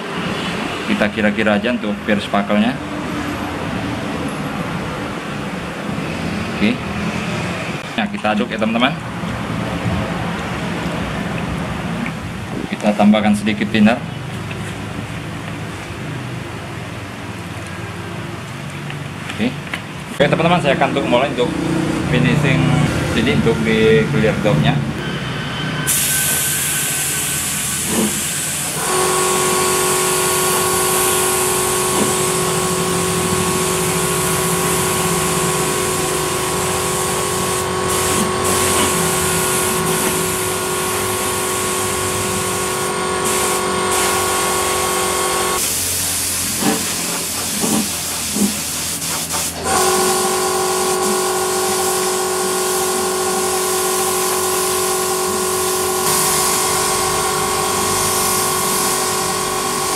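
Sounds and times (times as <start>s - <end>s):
steady multi-tone hum: 22.6s - 59.9s
spray gun hissing: 25.9s - 59.9s.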